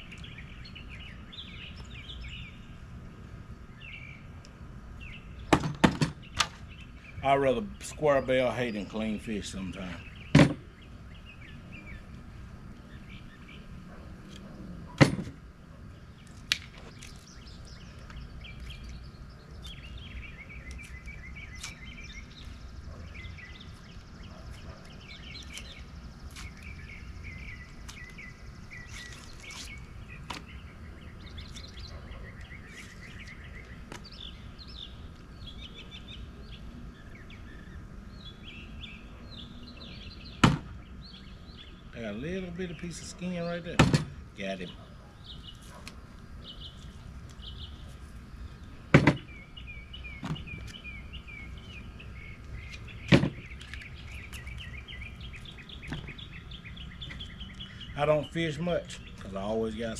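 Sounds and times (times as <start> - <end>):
birds chirping and singing: 0.0 - 59.9
sharp knocks: 5.5 - 6.6, 43.8 - 44.2, 48.9 - 49.3.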